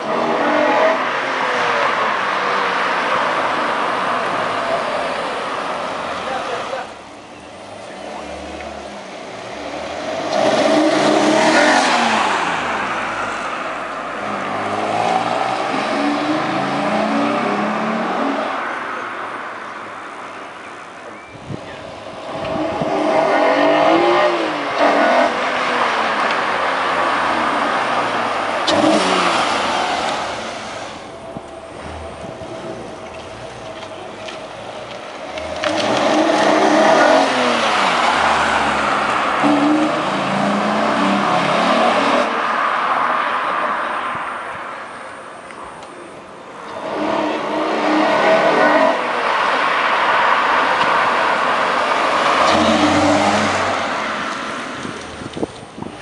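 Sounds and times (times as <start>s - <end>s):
car passing by: 7.8s - 19.1s, 22.3s - 44.7s, 46.6s - 55.5s
car engine accelerating hard: 21.9s - 44.2s, 46.6s - 55.5s.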